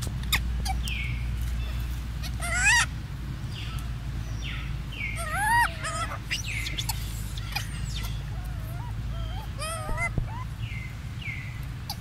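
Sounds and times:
macaque squeaky coos: 0:02.2 - 0:02.9, 0:05.1 - 0:10.6.

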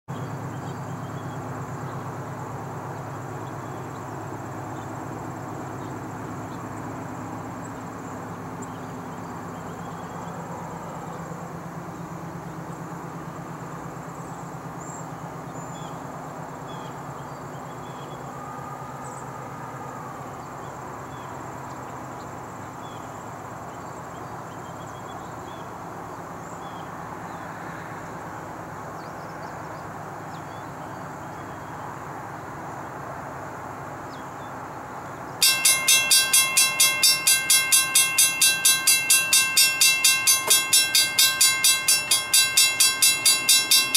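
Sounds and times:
distant locomotive engine rumble: 0:00.1 - 0:43.9
insects chirping: 0:33.4 - 0:43.9.

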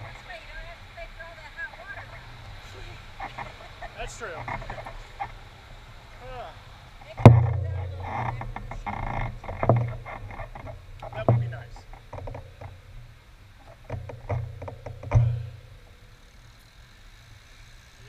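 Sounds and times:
knocks and thuds on camera housing: 0:13.8 - 0:15.6.

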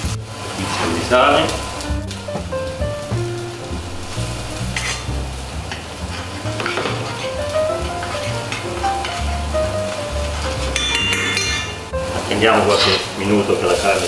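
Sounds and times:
background music with bass: 0:00.0 - 0:12.5
meat sizzling in a frying pan: 0:00.0 - 0:14.0
utensil stirring and clinking: 0:05.7 - 0:09.5, 0:10.3 - 0:14.0.

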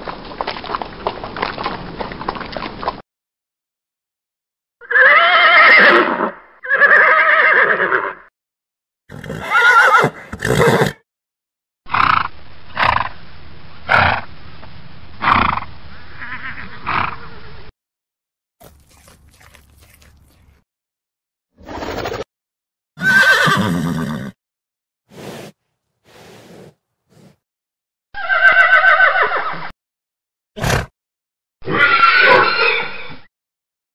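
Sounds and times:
horses neighing: 0:04.8 - 0:08.2, 0:09.1 - 0:11.0, 0:23.0 - 0:24.4, 0:28.2 - 0:29.5
breathy snort: 0:25.1 - 0:27.4.

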